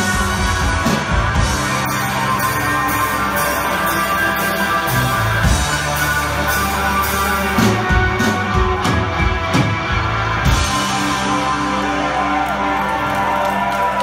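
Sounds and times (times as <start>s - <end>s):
steady drum beat: 0.0s - 12.0s
bass guitar: 0.0s - 14.0s
electric guitar: 0.0s - 14.0s.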